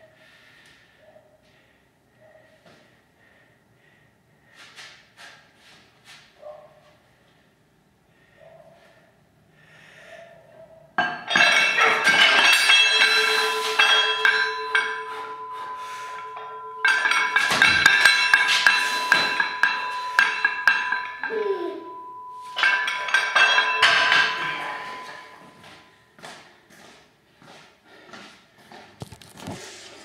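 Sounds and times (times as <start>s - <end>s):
weight plates clanking: 11.0s - 26.0s.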